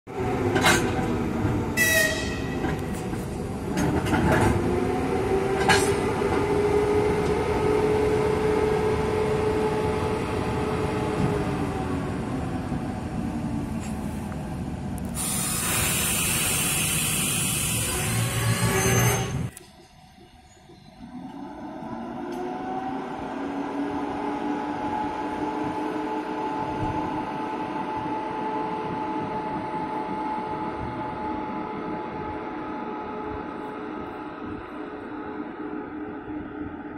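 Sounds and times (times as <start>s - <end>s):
locomotive machinery humming: 0.1s - 36.9s
short air hisses: 15.2s - 17.9s.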